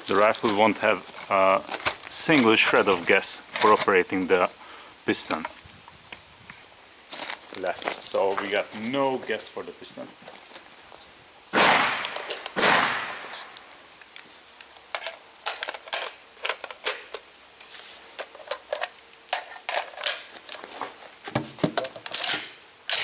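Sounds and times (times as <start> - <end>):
rustling: 0.0 - 22.6
rifle magazine metallic clicks: 11.6 - 17.2.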